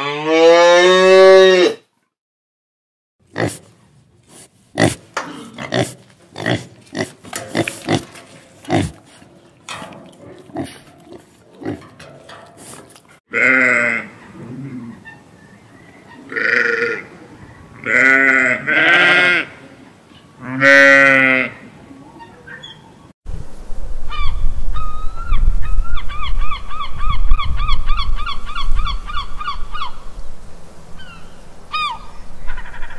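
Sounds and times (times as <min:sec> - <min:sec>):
pig grunting: 0:04.3 - 0:12.1, 0:12.8 - 0:15.0
sheep bleating: 0:13.3 - 0:14.2, 0:16.3 - 0:17.1, 0:17.8 - 0:19.6, 0:20.4 - 0:21.6.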